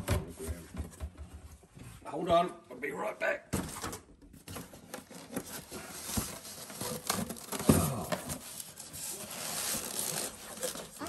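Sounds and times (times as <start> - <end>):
cardboard and styrofoam rustling: 3.6 - 11.0.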